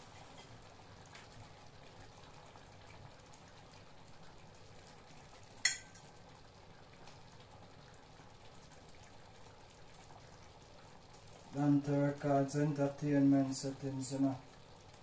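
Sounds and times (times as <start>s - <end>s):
pot simmering: 0.0s - 15.0s
spoon clinking against pot: 5.6s - 6.0s.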